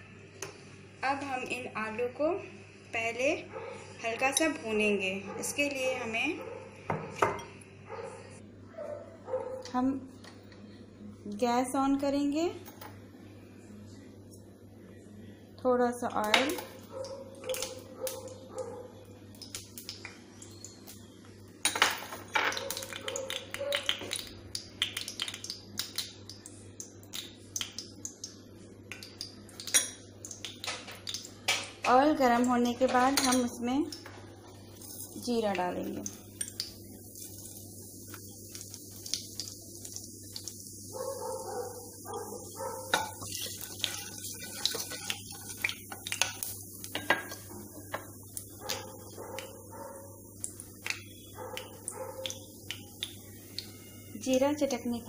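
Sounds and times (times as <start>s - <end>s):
oil crackling in a pan: 16.8s - 18.4s, 19.2s - 21.5s, 22.2s - 32.8s, 33.5s - 55.0s.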